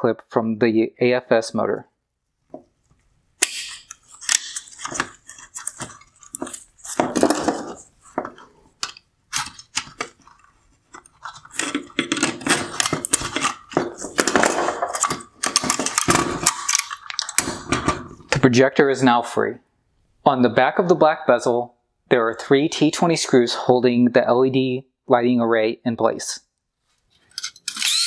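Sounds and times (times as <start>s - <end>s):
plastic clicks and rattles: 8.3s - 18.0s.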